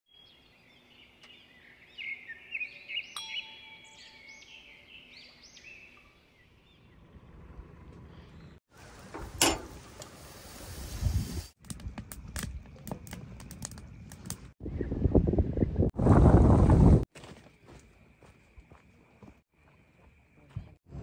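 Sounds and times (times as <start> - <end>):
small birds chirping: 0.1 - 8.6.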